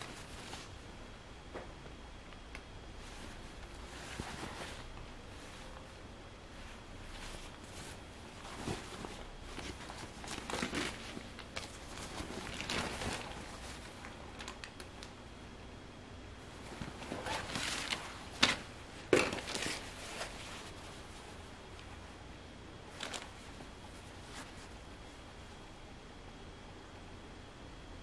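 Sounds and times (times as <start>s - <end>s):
denim fabric rustling: 0.0s - 0.9s, 3.0s - 15.2s, 16.4s - 22.2s, 22.8s - 25.5s.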